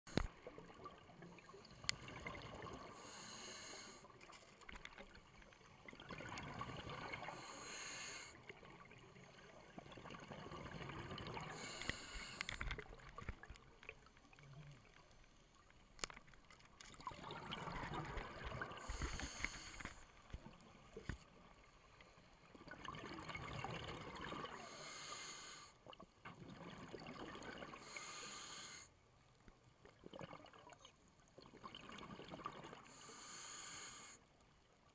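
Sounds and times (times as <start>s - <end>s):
diver inhaling through regulator: 2.8s - 4.1s, 7.2s - 8.4s, 11.4s - 12.7s, 18.7s - 20.1s, 24.5s - 25.8s, 27.8s - 28.9s, 32.9s - 34.2s
bubbles gurgling: 5.8s - 7.4s, 9.6s - 11.7s, 17.0s - 19.1s, 22.6s - 24.6s, 26.4s - 27.8s.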